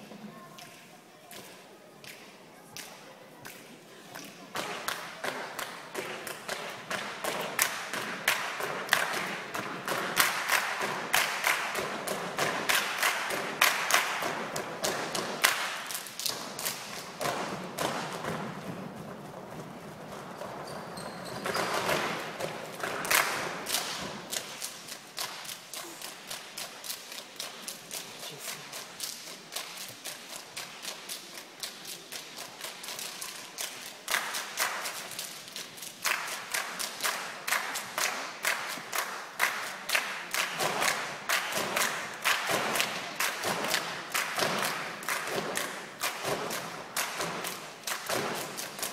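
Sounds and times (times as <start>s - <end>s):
dancers' feet tapping on stage: 4.5s - 48.9s.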